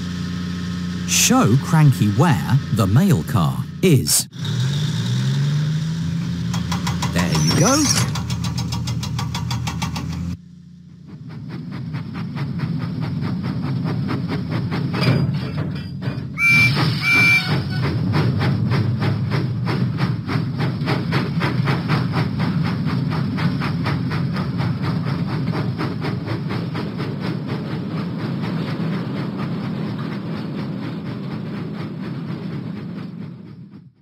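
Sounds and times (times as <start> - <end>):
steam locomotive chuffing: 0.0 - 34.0
cartoon train whistle toots: 16.4 - 18.0.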